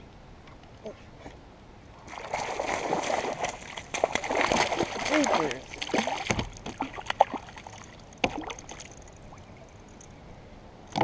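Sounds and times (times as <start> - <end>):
faint water sound: 0.0 - 11.0
fish splashing in water: 2.1 - 9.0.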